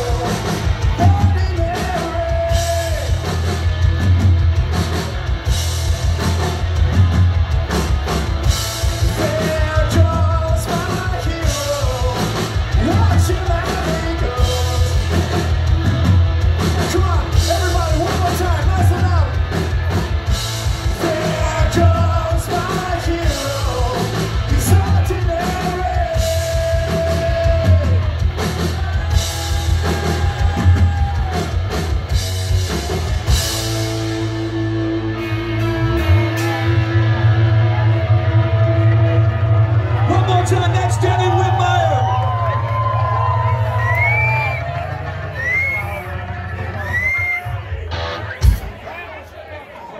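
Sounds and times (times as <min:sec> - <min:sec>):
lead singer singing: 0:00.0 - 0:03.3, 0:09.0 - 0:15.6, 0:20.8 - 0:31.9, 0:35.2 - 0:38.9
live rock band playing: 0:00.0 - 0:49.2.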